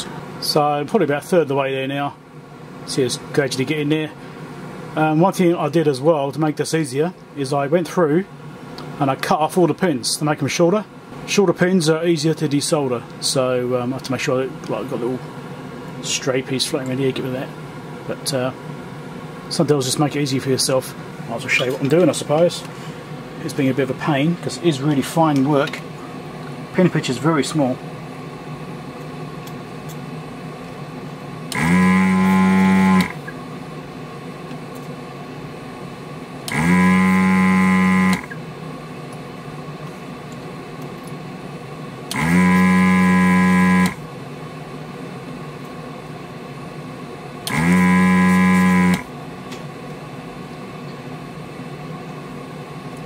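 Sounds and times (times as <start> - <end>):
low steady hum: 0.0 - 53.0
suction pump buzzing: 31.5 - 33.3, 36.4 - 38.4, 42.1 - 44.1, 47.4 - 49.1.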